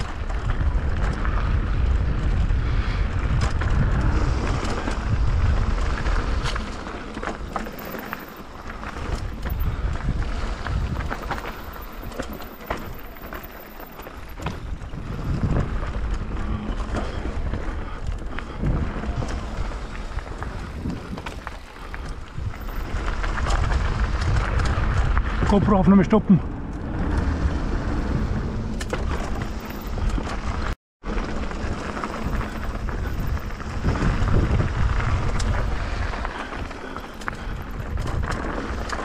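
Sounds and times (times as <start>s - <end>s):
wind buffeting microphone: 0.0s - 30.8s, 31.4s - 39.0s
bike rattling over bumps: 0.0s - 39.0s
tyres crunching over gravel: 3.8s - 39.0s.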